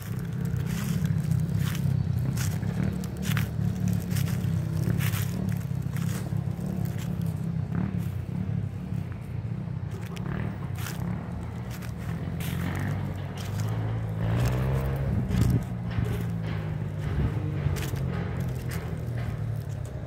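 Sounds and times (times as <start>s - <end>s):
footsteps crunching dry leaves: 0.0s - 20.0s
low rumble: 10.0s - 20.0s.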